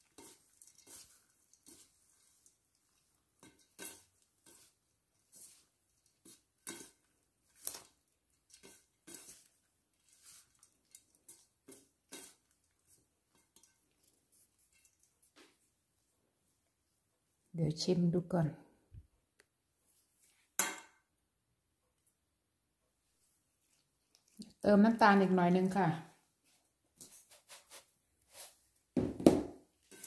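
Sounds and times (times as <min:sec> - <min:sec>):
rustles and scrapes in steel bowl: 0:00.0 - 0:15.8, 0:23.6 - 0:28.8, 0:29.7 - 0:30.0.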